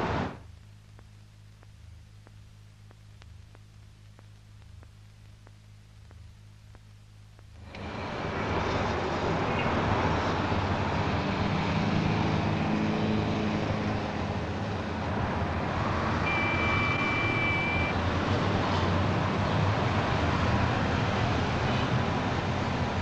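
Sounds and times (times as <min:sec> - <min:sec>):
street traffic din: 0:07.6 - 0:23.0
short high whistle-like tone: 0:16.3 - 0:17.9.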